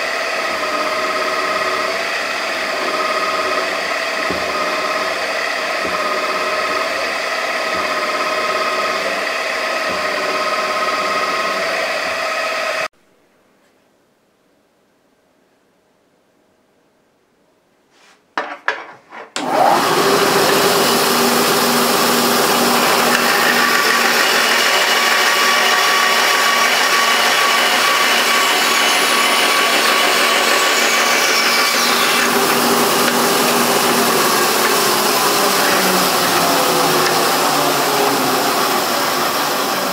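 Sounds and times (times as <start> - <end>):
bandsaw cutting metal: 0.0 - 12.9, 19.4 - 39.9.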